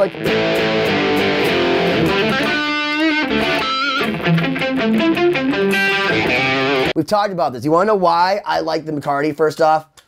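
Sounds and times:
electric guitar lead line: 0:00.0 - 0:07.0.

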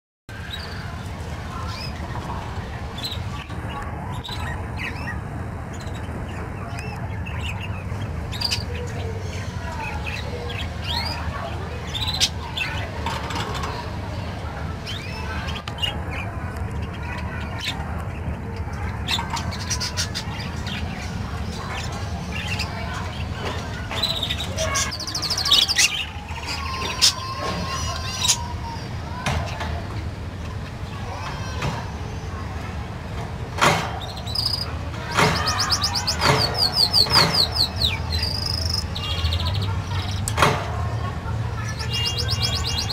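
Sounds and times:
budgerigars chirping: 0:35.4 - 0:40.3.

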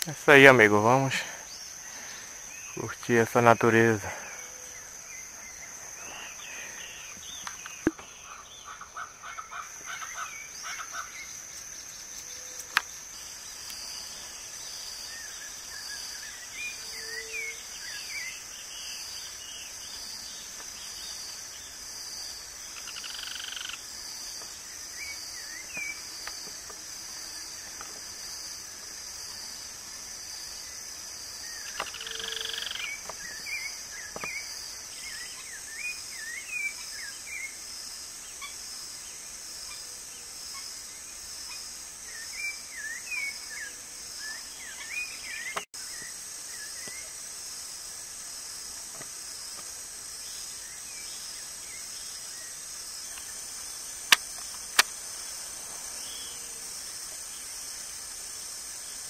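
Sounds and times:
insects buzzing: 0:00.0 - 0:59.0
sharp clicks: 0:54.1 - 0:54.9.

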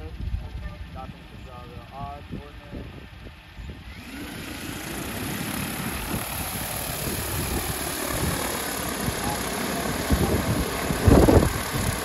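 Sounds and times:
drone rotors whirring: 0:00.0 - 0:12.0.

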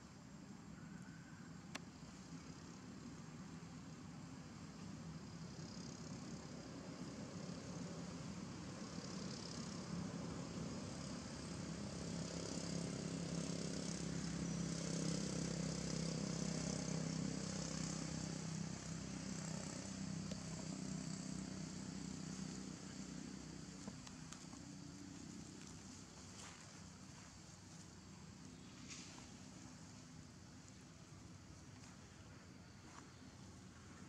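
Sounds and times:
steady high hiss: 0:00.0 - 0:34.0
distant engine drone: 0:05.5 - 0:32.1.

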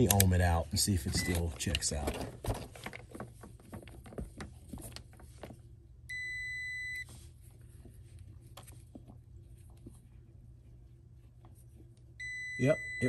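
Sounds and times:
clicks and rustles of wires: 0:00.0 - 0:05.7, 0:07.5 - 0:10.0
meter continuity beep: 0:06.1 - 0:07.1, 0:12.2 - 0:13.0.

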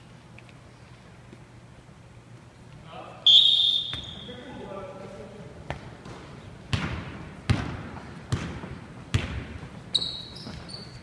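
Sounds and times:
basketball bouncing on wooden floor: 0:05.7 - 0:10.9.

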